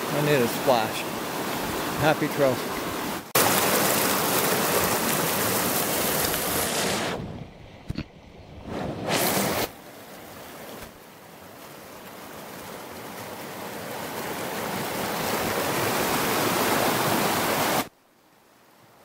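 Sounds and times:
stream rushing over rocks: 0.0 - 7.2, 9.2 - 17.9.

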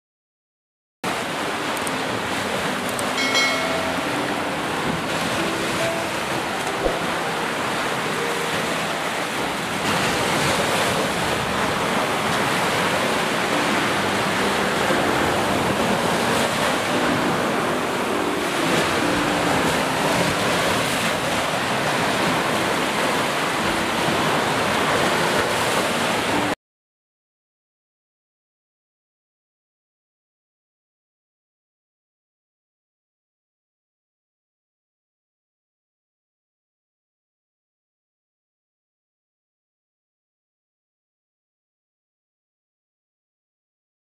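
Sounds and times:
ocean surf on beach: 1.1 - 26.6.

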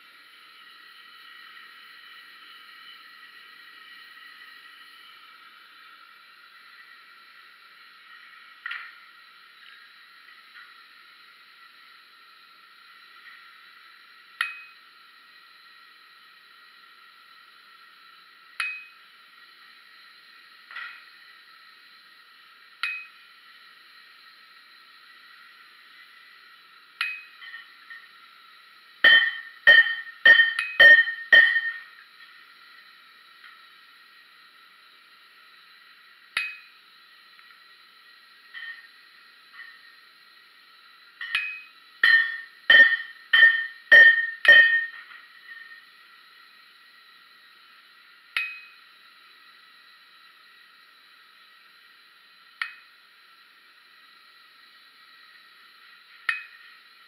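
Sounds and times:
faint steady hiss: 0.0 - 57.0
hammer striking chisel on hot steel: 14.4 - 14.8, 18.6 - 19.0, 22.8 - 23.2, 27.0 - 28.0, 29.0 - 31.9, 36.4 - 36.7, 41.2 - 45.6, 48.4 - 48.8, 56.3 - 56.6.

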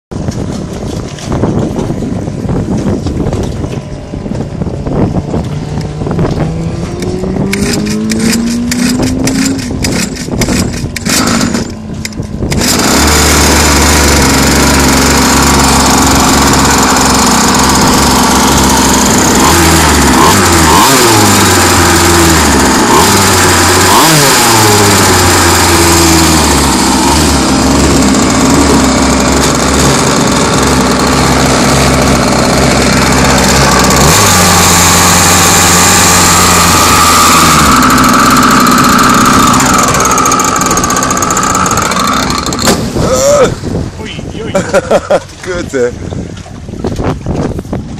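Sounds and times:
engine cranking with whine: 2.6 - 44.9
small petrol engine running: 5.8 - 43.5.

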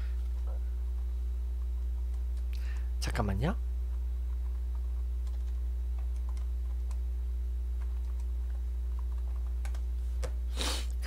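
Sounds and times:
low electrical hum: 0.0 - 11.0
typing on keyboard: 4.4 - 7.0, 7.8 - 9.9.

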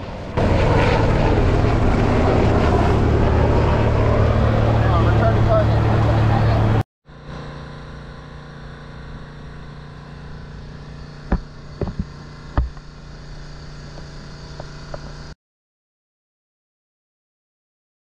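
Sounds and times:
low mechanical hum: 0.0 - 15.4
sharp knocks: 11.3 - 12.8.

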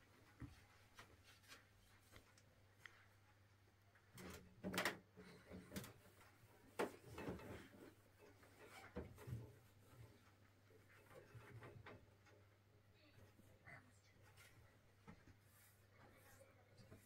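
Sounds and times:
soft knocks and scrapes: 5.3 - 12.5.

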